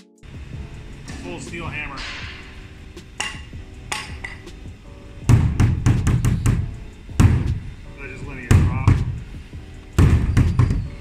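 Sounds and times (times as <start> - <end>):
hammer striking plastic hull: 5.3 - 7.6.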